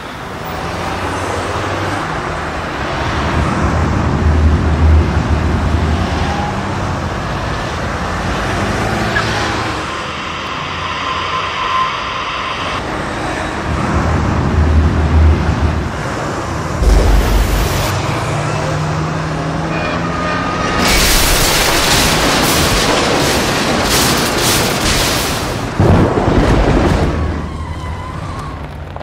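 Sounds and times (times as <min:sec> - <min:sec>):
road traffic rumble: 0:00.0 - 0:23.7
hissing rush: 0:16.8 - 0:18.2.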